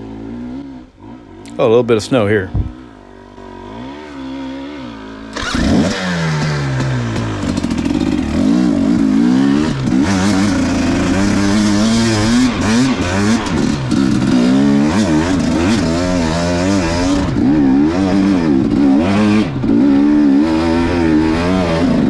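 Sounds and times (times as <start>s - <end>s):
dirt bike engine revving: 0.0s - 22.0s.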